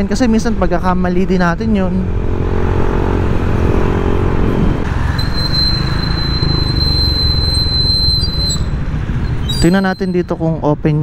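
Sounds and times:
wind rumble: 0.0s - 9.8s
scooter engine: 2.2s - 9.5s
high-pitched squeal: 5.0s - 10.3s.

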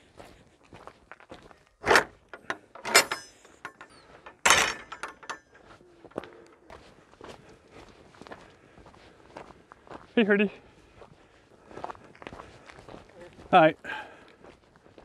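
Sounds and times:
footsteps on stony track: 0.0s - 2.7s, 5.4s - 15.0s
wooden gate knocking shut: 1.8s - 5.4s.

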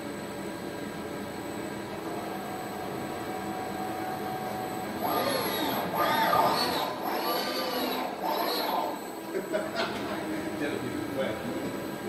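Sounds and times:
steady hum: 0.0s - 12.0s
robot arm motors whining: 4.6s - 9.3s.

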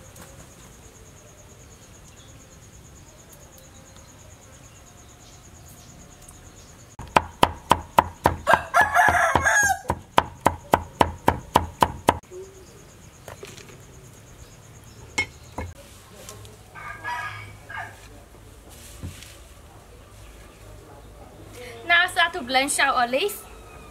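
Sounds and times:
knife chopping on wooden board: 7.0s - 12.2s
rooster crowing: 8.4s - 10.0s, 16.7s - 18.0s, 23.4s - 23.9s.

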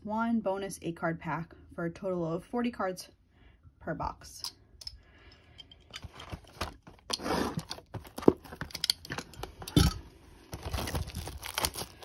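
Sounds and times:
plastic wrap crinkling: 9.4s - 12.0s.

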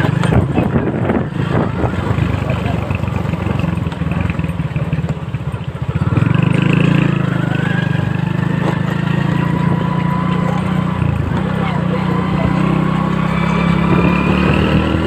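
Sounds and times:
small motorcycle engine running: 0.0s - 15.0s.

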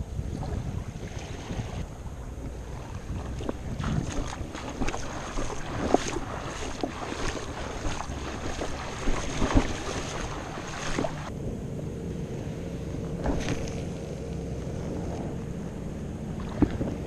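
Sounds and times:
small waves lapping: 0.0s - 11.3s, 12.4s - 17.0s
faint steady hum: 0.0s - 17.0s
wind buffeting microphone: 0.0s - 17.0s
short splashes and ticks: 0.3s - 11.3s, 16.4s - 17.0s.

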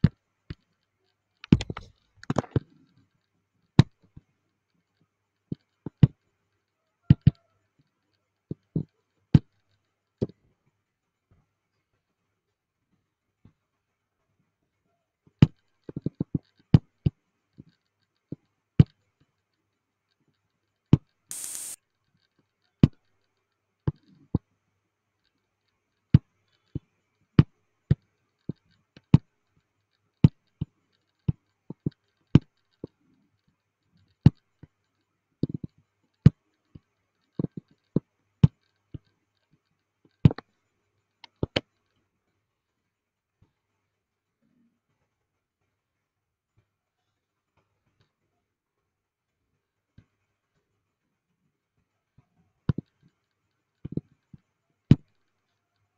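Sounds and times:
computer mouse clicking: 1.4s - 2.7s, 21.3s - 21.8s
short burst of hiss: 21.3s - 21.8s.

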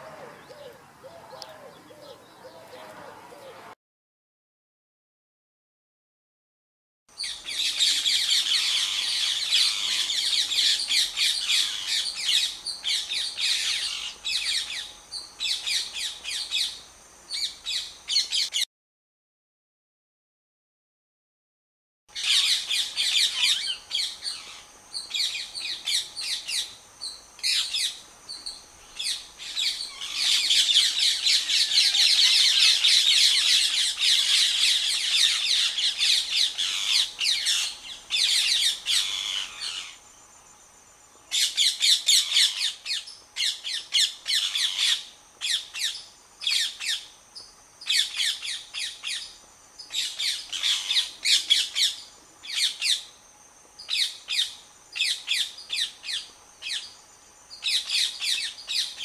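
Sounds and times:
parakeets screeching: 7.6s - 12.5s, 29.0s - 40.0s, 50.0s - 52.0s.

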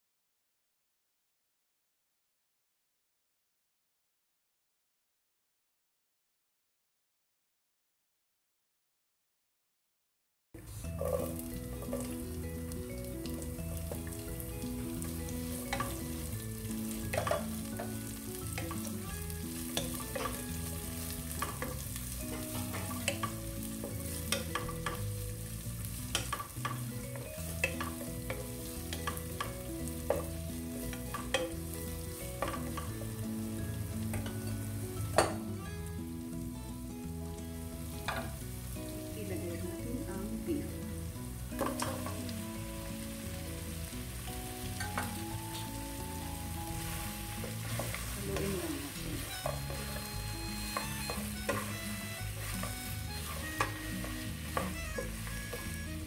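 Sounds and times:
onion sizzling in hot oil: 10.6s - 56.0s
soft background music: 10.6s - 56.0s
spatula scraping and knocking pan: 11.0s - 12.3s, 13.2s - 25.1s, 25.9s - 33.2s, 34.0s - 34.6s, 41.6s - 42.4s, 46.7s - 56.0s.

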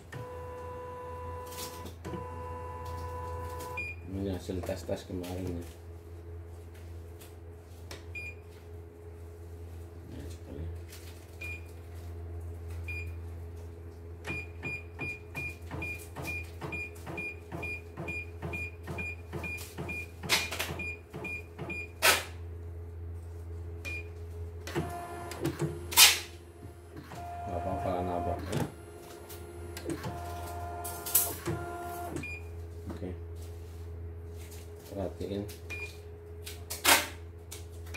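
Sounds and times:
steady low hum: 0.0s - 37.9s.

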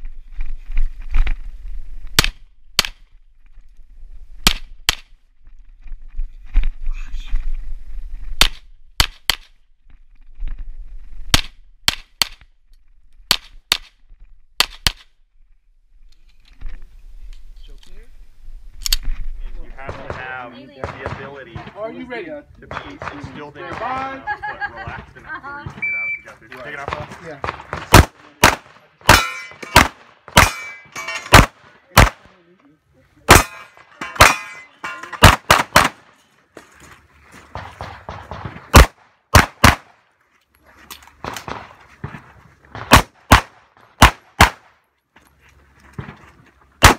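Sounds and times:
pistol shots: 19.9s - 21.8s, 22.7s - 25.0s, 26.8s - 32.3s, 33.3s - 36.1s, 37.6s - 40.0s, 41.2s - 41.8s, 42.7s - 44.7s
ringing clang of hit steel: 29.1s - 29.8s, 30.4s - 31.3s.

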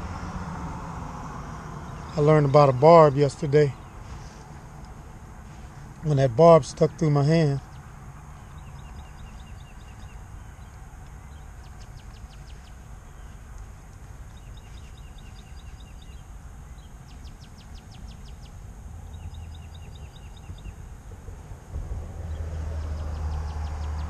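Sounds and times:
birds chirping: 1.3s - 24.0s
low rumble: 20.8s - 24.0s.

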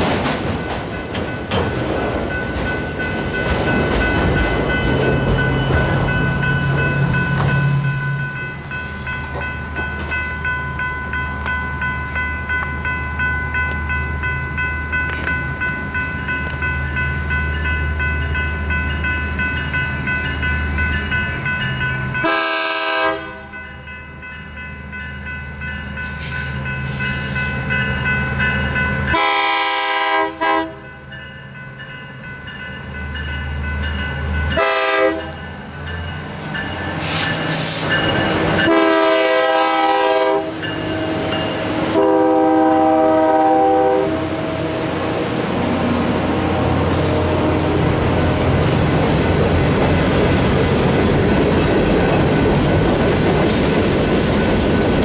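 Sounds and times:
train wheel clatter: 0.0s - 7.7s, 48.9s - 55.0s
train air horn blasts: 22.2s - 23.5s, 29.1s - 30.8s, 34.6s - 35.3s, 38.6s - 40.6s, 41.9s - 44.6s.

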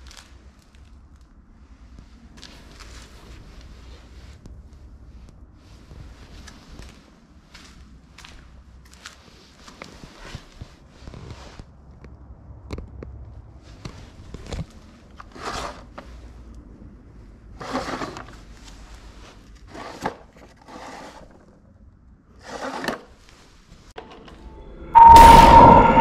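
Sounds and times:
scrapes and rubs on wood: 19.7s - 21.4s.

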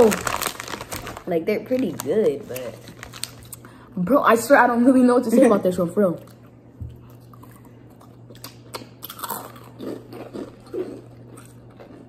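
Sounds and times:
crunchy chips being chewed: 0.0s - 3.6s, 6.3s - 12.0s.

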